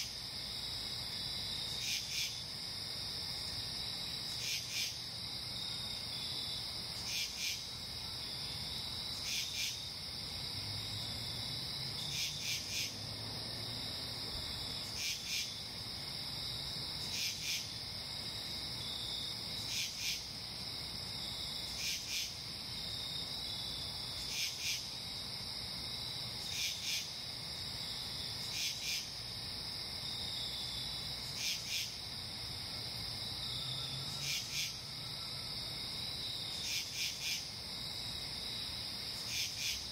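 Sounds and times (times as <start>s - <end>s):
cricket trill: 0.0s - 39.9s
pulsing insect call: 33.4s - 37.6s.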